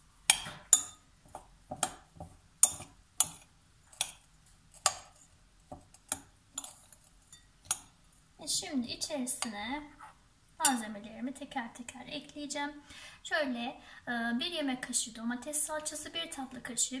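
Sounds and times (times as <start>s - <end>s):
metal spoon clinking on glass bowl: 0.3s - 1.0s, 6.1s - 7.9s.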